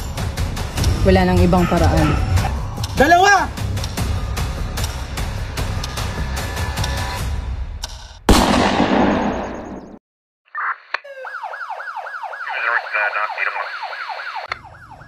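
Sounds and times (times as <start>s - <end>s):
music: 0.0s - 8.2s
police siren yelping: 1.5s - 2.6s, 10.6s - 15.0s
loud gunshot with echo: 8.3s - 10.0s.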